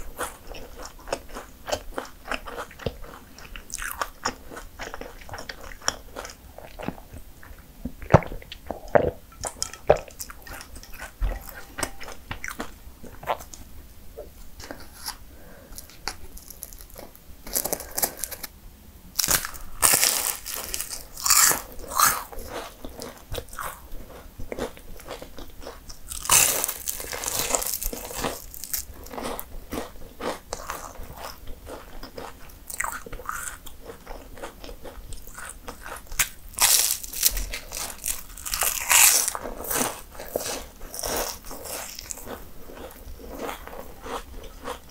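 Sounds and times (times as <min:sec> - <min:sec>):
chewing: 0:00.0 - 0:13.6, 0:19.2 - 0:44.9
pastry crunching: 0:15.8 - 0:18.5, 0:19.2 - 0:44.9.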